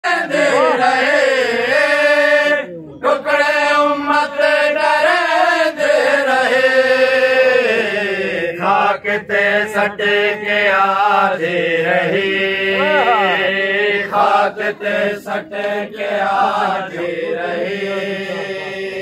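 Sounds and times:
man chanting a lament: 0.2 - 19.0.

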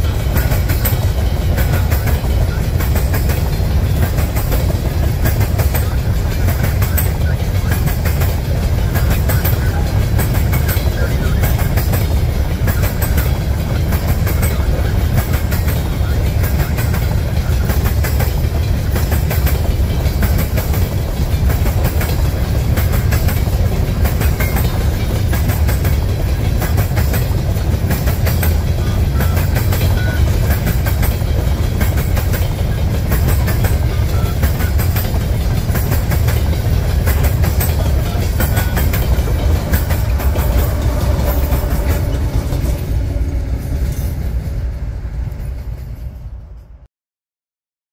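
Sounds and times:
wheels clicking over rail joints: 0.0 - 44.6
heavy low rumble of train: 0.0 - 46.9.

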